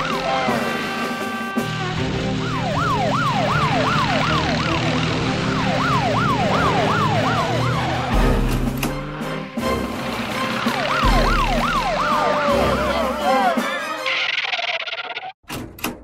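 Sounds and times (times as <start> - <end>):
police siren: 0.0 - 8.5, 10.0 - 14.3
background music: 0.0 - 14.4.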